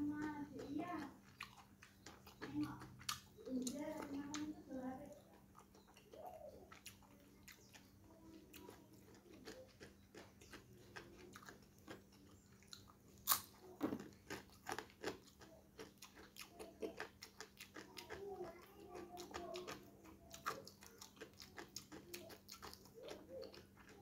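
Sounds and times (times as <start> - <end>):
mouth chewing: 0.0 - 24.0
crispy fried fish crunch: 5.2 - 24.0.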